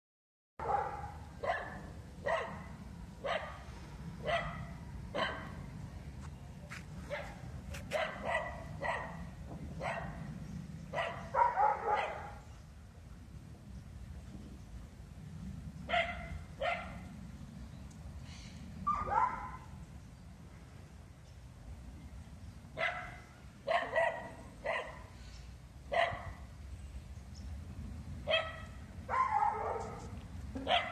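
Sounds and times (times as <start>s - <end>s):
puppy barking: 0.6s - 3.6s, 4.2s - 5.6s, 7.1s - 9.2s, 9.8s - 10.2s, 10.9s - 12.4s, 15.9s - 17.0s, 18.9s - 19.6s, 22.8s - 25.0s, 25.9s - 26.4s, 28.3s - 30.9s.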